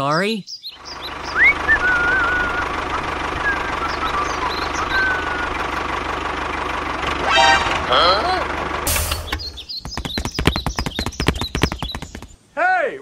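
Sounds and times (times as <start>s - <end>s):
birds whistling faintly: 0.4s - 5.8s, 9.2s - 12.4s
tractor engine knocking: 0.9s - 7.2s, 7.9s - 12.4s.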